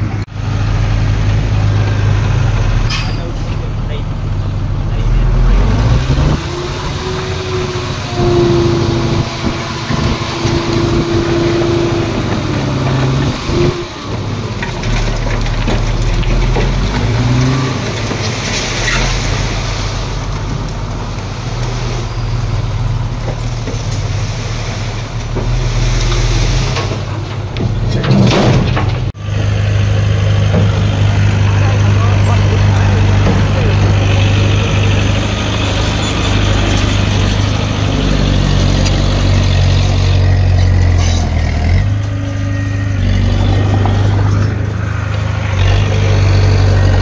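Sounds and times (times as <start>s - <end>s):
heavy machinery diesel engines: 0.0s - 47.0s.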